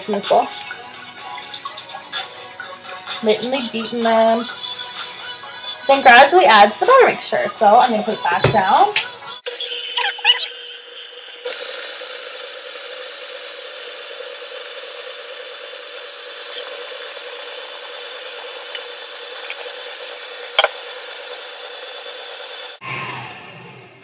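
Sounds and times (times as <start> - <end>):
electric stand mixer running: 9.5 - 23.7.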